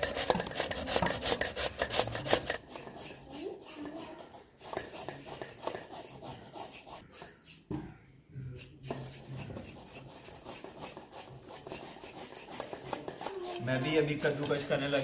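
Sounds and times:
carrots grated on hand grater: 0.0 - 7.0, 9.1 - 15.0.

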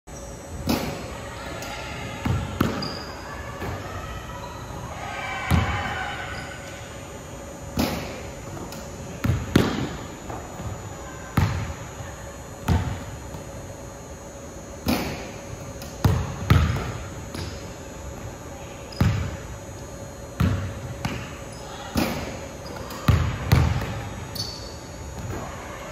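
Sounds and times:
basketball bouncing on wooden floor: 16.0 - 16.9.

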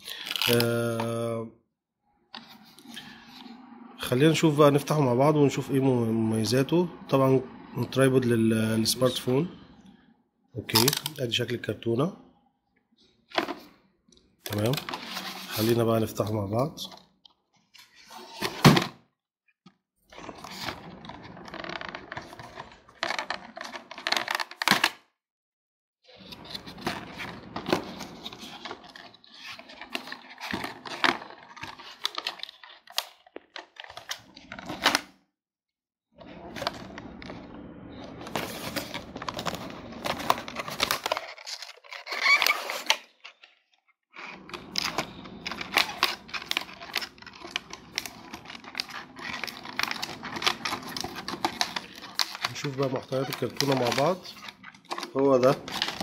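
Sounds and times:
cardboard box rustling and scraping: 14.9 - 15.8, 26.3 - 32.6, 38.2 - 43.0, 44.5 - 56.0.

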